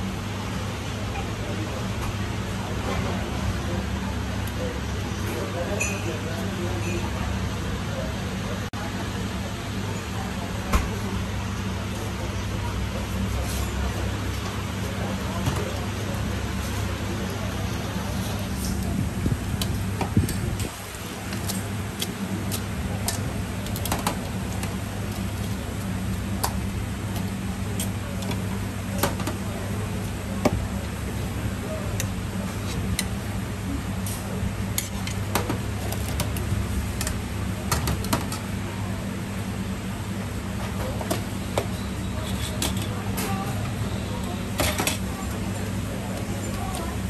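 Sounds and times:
cooking equipment hum: 0.0s - 47.0s.

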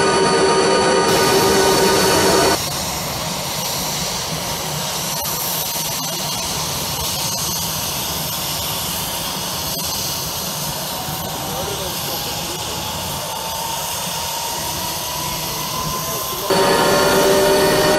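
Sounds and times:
helicopter turbine engines whining: 0.0s - 17.9s.

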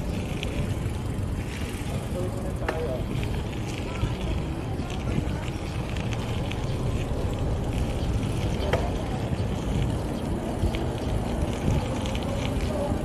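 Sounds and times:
bicycle rattling clicks: 0.0s - 13.0s
bicycle tyre rumble on road: 0.0s - 13.0s
wind on microphone: 3.0s - 13.0s.

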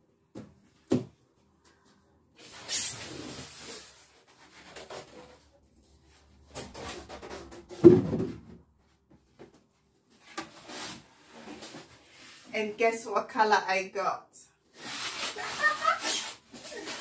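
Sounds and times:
paper and cardboard rustling: 3.4s - 7.8s, 14.8s - 17.0s.

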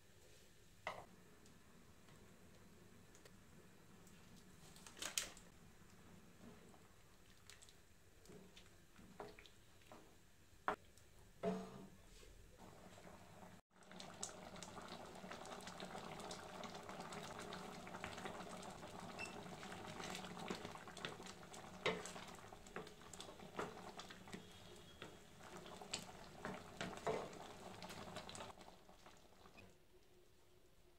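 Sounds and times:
thick liquid bubbling and popping: 13.7s - 29.7s
spatula stirring and scraping: 21.8s - 27.4s.

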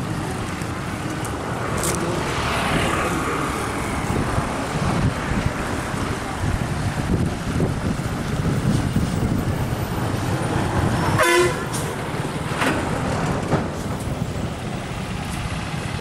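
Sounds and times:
horn toot: 11.1s - 11.9s.

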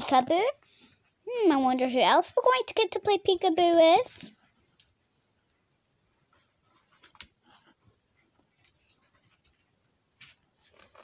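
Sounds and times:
cardboard book pages turning: 6.8s - 7.8s, 8.6s - 11.0s.

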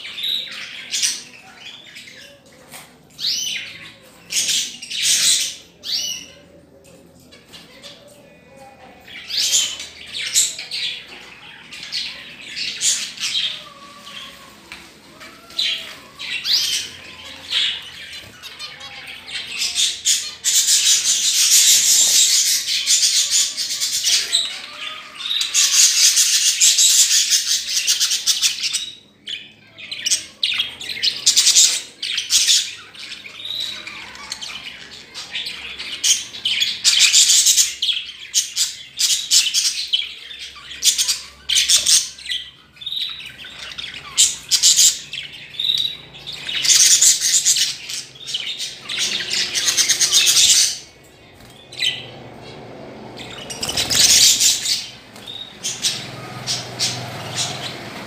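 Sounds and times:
small birds chattering and chirping: 0.0s - 58.0s.

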